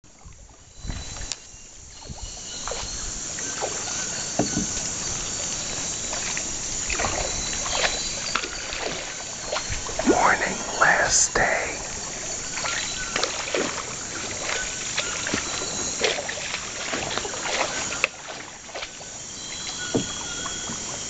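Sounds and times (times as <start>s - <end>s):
canoe paddles dipping in water: 0.1s - 10.7s, 11.9s - 21.0s
water splashes and drips: 0.2s - 10.1s, 11.9s - 21.0s
steady high hiss: 9.8s - 13.1s.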